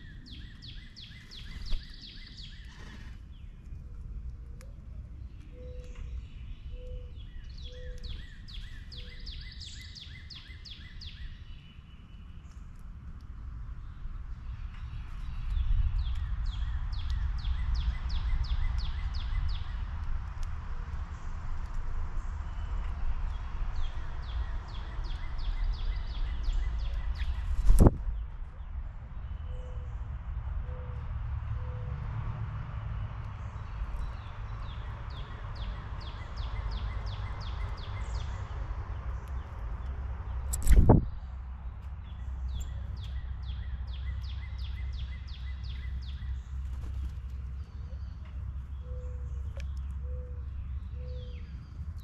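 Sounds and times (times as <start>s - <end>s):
low outdoor rumble: 11.4s - 52.0s.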